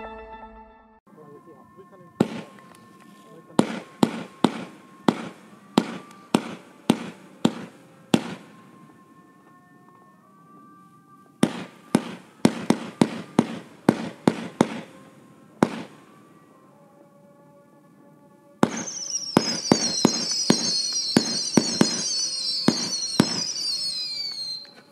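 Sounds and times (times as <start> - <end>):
firework cake shots: 3.6 - 8.4, 11.4 - 14.9, 18.6 - 24.9.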